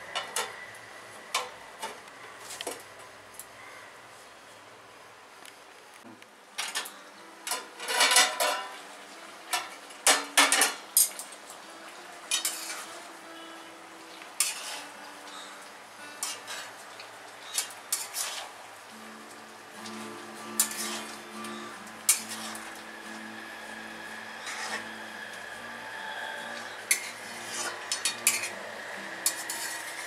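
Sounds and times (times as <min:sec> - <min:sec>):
food sizzling: 0:06.5 - 0:30.0
metal spatula scraping metal pot: 0:06.7 - 0:08.8, 0:12.3 - 0:13.0, 0:14.4 - 0:15.0, 0:16.2 - 0:16.8, 0:17.4 - 0:18.5, 0:20.4 - 0:30.0.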